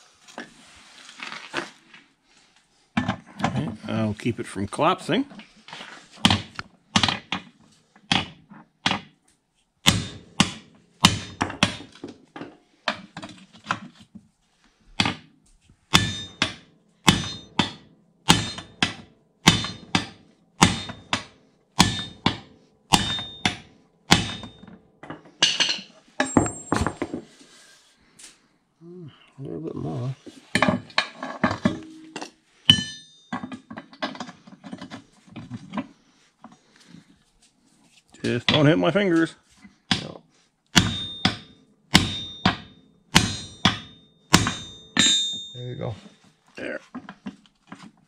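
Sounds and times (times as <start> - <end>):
hammer striking metal: 9.8 - 11.9, 15.9 - 24.7, 31.6 - 33.6, 40.8 - 45.8.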